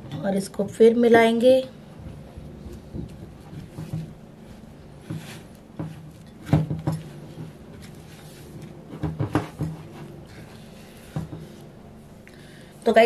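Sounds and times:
spatula knocking and scraping bowl: 5.0s - 10.1s.

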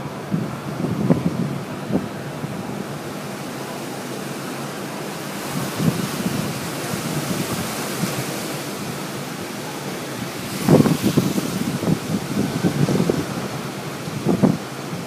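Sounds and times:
gusty wind buffeting microphone: 0.0s - 3.2s, 4.7s - 15.0s.

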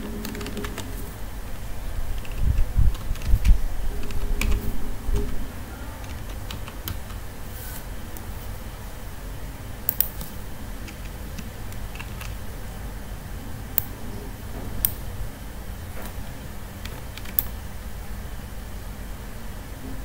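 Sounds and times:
steady low hum: 0.0s - 20.0s
mouse and keyboard clicks: 9.9s - 12.4s.

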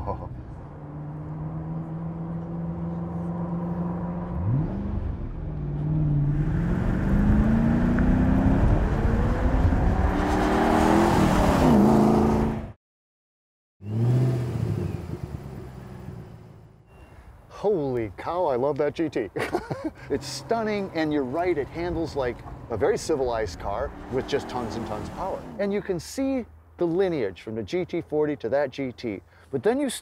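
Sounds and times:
car engine accelerating: 0.1s - 12.7s, 20.1s - 25.6s.

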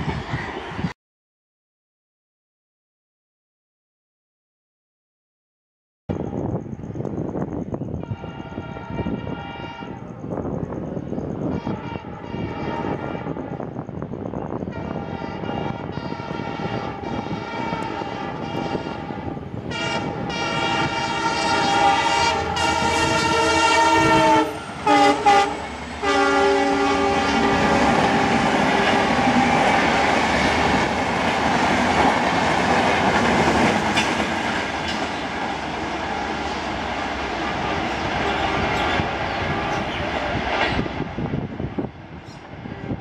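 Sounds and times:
train horn blasts: 8.0s - 10.2s, 11.4s - 13.6s, 14.6s - 30.5s, 37.4s - 40.9s
train wheels clattering on rails: 27.4s - 41.1s.

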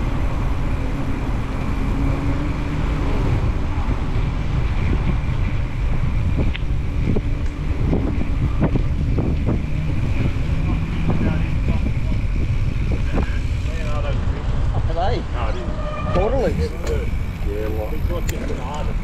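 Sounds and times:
bicycle rolling along path: 0.0s - 19.0s
wind buffeting microphone: 0.0s - 19.0s.

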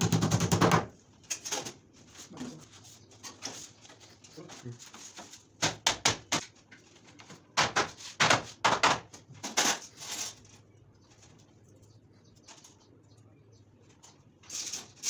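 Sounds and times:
hammer knocking on wood: 5.6s - 6.4s.

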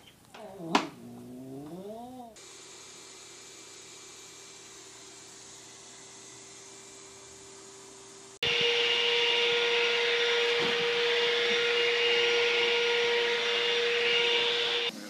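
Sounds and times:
robot vacuum cleaner running: 0.6s - 15.0s.

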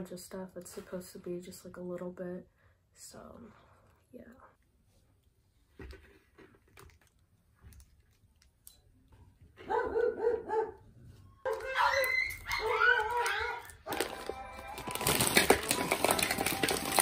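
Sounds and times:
dog yipping: 9.6s - 10.8s, 11.4s - 14.0s
dog whining: 11.4s - 14.0s.

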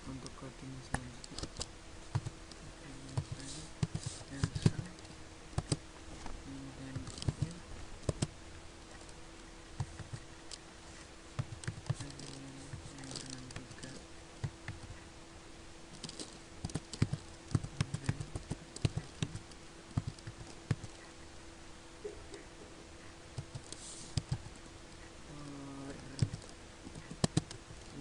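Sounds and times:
faint hum: 0.0s - 28.0s
keyboard typing: 0.9s - 5.8s, 6.5s - 9.2s, 9.8s - 10.6s, 11.4s - 15.1s, 15.9s - 21.1s, 23.0s - 28.0s.

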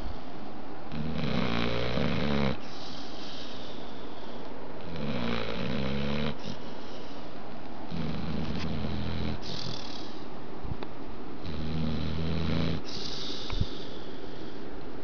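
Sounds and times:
dog snoring: 0.9s - 3.7s, 4.8s - 7.2s, 7.9s - 10.2s, 11.4s - 14.0s
breathy hiss of breath: 2.6s - 4.8s, 6.3s - 7.5s, 12.8s - 14.8s.

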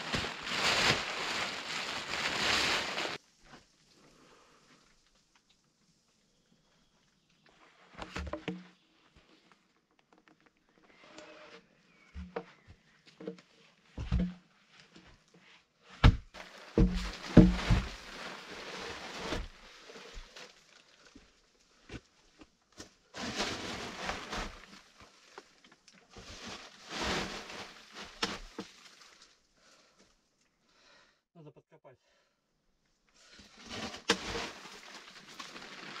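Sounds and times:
plastic tarp rustling: 0.0s - 3.7s, 16.3s - 21.3s, 23.1s - 29.4s, 33.2s - 36.0s
heavy log thumping: 16.0s - 18.0s
log scraping: 16.0s - 21.3s, 23.1s - 28.7s, 33.4s - 36.0s.

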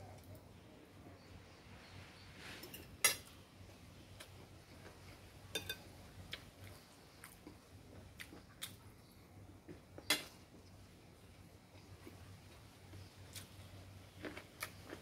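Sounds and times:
cutlery clinking on a plate: 2.6s - 3.3s, 5.5s - 5.9s.

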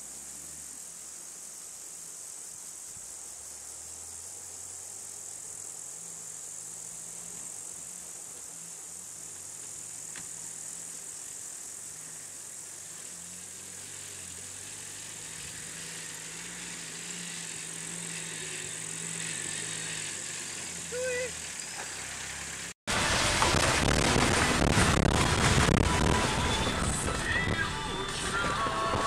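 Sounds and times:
insects chirring: 0.0s - 22.8s
engine idling: 11.6s - 29.0s.

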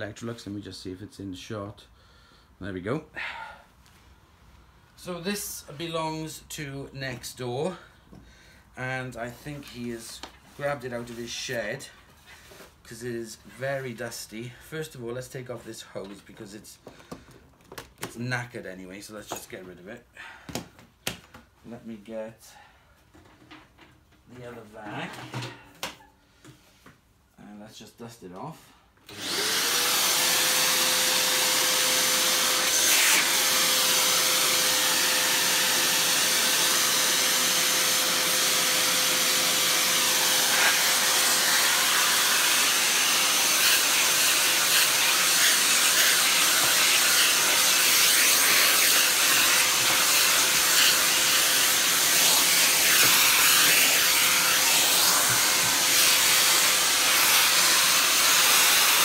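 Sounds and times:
vacuum cleaner running: 29.1s - 59.0s.

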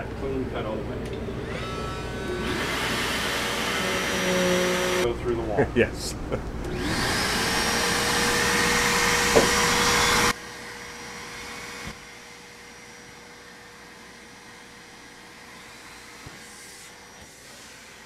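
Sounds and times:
handheld vacuum running: 1.4s - 5.0s, 6.7s - 18.0s
knock: 9.3s - 9.6s.

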